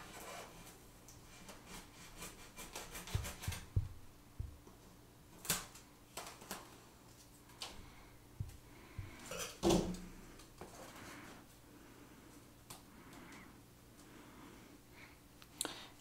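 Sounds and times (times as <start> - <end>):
knife sawing through foam board: 1.3 - 3.8.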